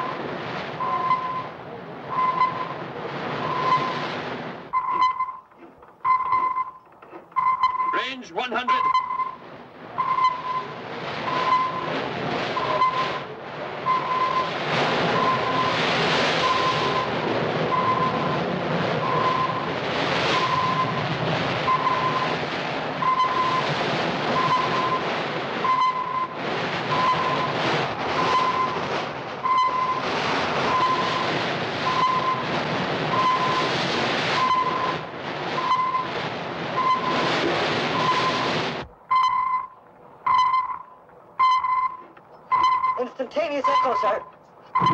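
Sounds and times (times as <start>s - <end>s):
ship rushing rumble: 0.0s - 44.9s
sonar pinging: 0.8s - 2.8s, 3.4s - 4.1s, 4.7s - 6.8s, 7.4s - 14.5s, 16.4s - 18.4s, 19.0s - 19.7s, 20.3s - 21.0s, 21.6s - 22.4s, 23.0s - 23.7s, 24.4s - 27.6s, 28.2s - 30.1s, 30.7s - 32.5s, 33.1s - 33.7s, 34.4s - 35.0s, 35.6s - 36.1s, 36.8s - 37.3s, 37.9s - 38.5s, 39.1s - 44.9s.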